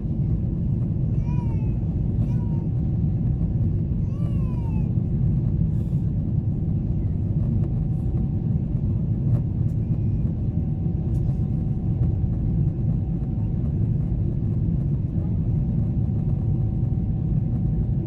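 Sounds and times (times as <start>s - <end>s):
airliner cabin rumble: 0.0s - 18.0s.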